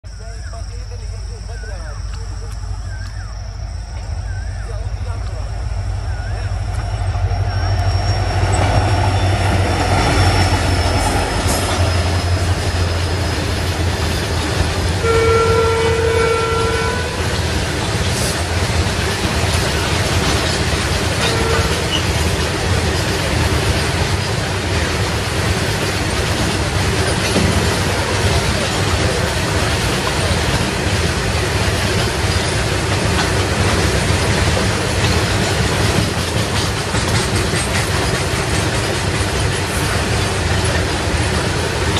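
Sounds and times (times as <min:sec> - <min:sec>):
diesel locomotive engine: 0:00.0 - 0:41.9
train wheels clattering on rails: 0:03.9 - 0:41.9
train horn: 0:15.0 - 0:17.5, 0:21.2 - 0:22.3.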